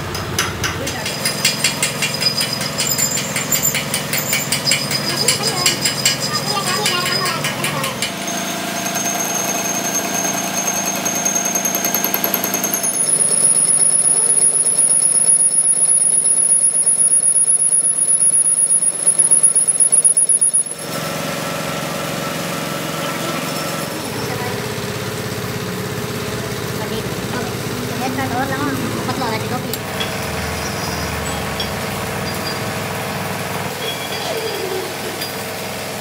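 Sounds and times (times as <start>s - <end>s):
metal lathe running: 0.0s - 36.0s
cutting tool squealing and chattering: 1.8s - 8.2s, 29.7s - 32.7s, 33.7s - 35.3s.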